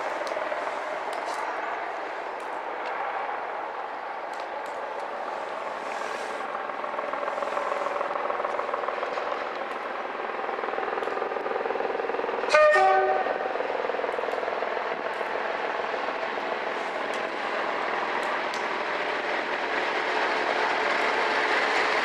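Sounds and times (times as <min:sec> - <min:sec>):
diesel locomotive engine: 0:00.0 - 0:22.0
two-tone train horn: 0:12.5 - 0:13.5.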